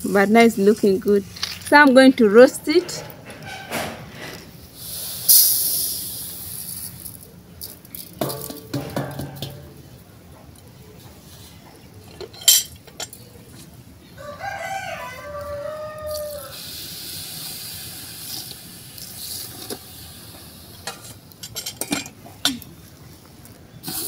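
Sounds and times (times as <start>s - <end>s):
water hissing on hot seeds: 4.7s - 8.1s, 15.4s - 21.0s
rooster crowing: 14.2s - 16.6s.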